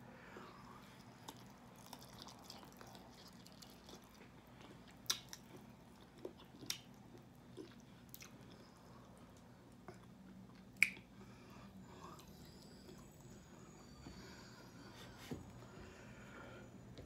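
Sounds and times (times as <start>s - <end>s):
steady low hum: 0.0s - 17.0s
person chewing chicken wings: 1.0s - 11.1s
wet mouth clicks: 10.8s - 11.1s.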